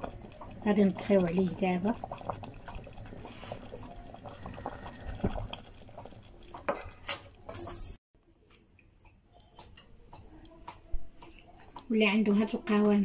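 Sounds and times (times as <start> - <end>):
thick sauce bubbling: 0.0 - 8.0.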